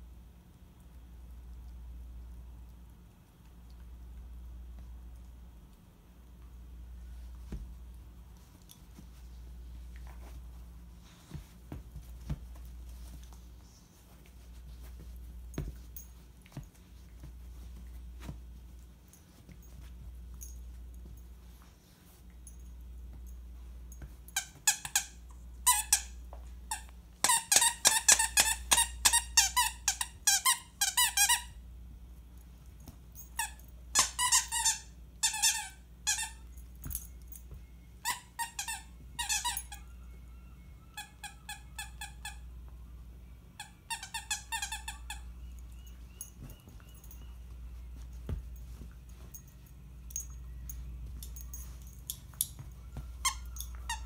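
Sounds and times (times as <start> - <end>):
dog toy squeaking: 24.4 - 31.6, 33.4 - 36.4, 38.0 - 39.8, 40.9 - 42.5, 43.6 - 47.3, 53.2 - 54.0.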